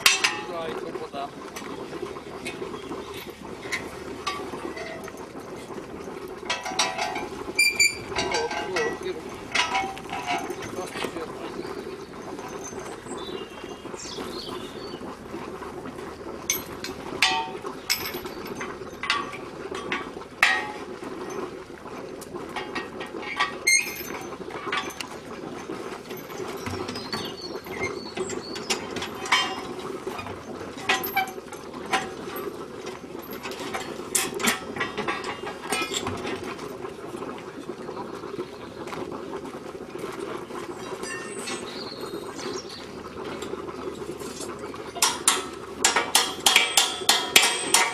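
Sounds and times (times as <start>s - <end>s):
metal clanks: 0.0s - 0.8s, 2.5s - 5.4s, 6.4s - 11.3s, 16.5s - 21.5s, 22.4s - 25.3s, 26.1s - 36.6s, 44.3s - 47.9s
chain rattling: 6.5s - 11.1s, 16.5s - 20.0s, 23.2s - 27.9s, 28.7s - 32.5s.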